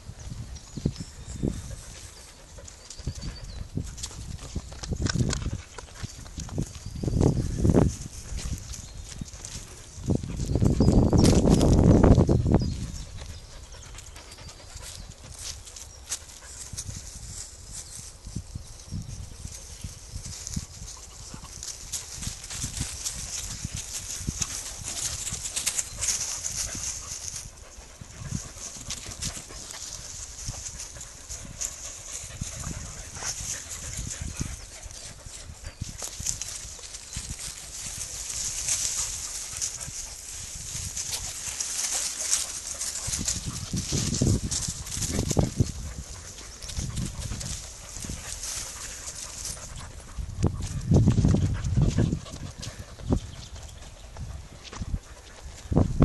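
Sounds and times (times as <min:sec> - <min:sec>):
dogs moving about on sand: 0:00.0 - 0:56.0
dry leaves rustling and crackling: 0:15.3 - 0:27.6, 0:35.9 - 0:49.7.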